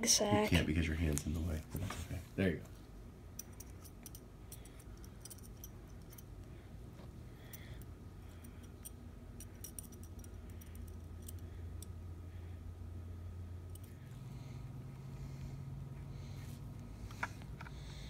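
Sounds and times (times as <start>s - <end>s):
low hum: 0.0s - 18.0s
metal probe clicking on pins: 3.4s - 6.4s, 7.5s - 12.0s, 13.7s - 14.0s.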